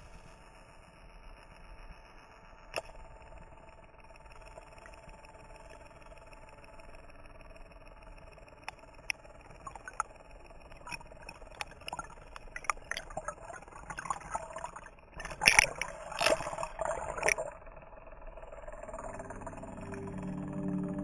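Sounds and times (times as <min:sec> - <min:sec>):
small clicks: 0:02.6 - 0:03.1, 0:08.2 - 0:13.3, 0:15.2 - 0:17.6
water gurgling underwater: 0:10.8 - 0:17.6.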